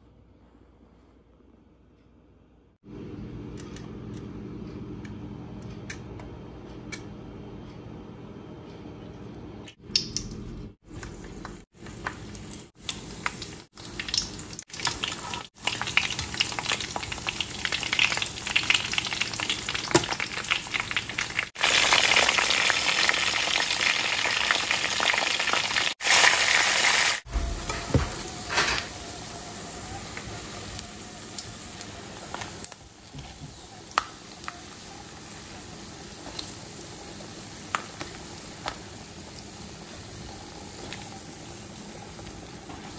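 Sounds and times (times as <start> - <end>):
fish sizzling in hot oil: 12.7 - 42.7.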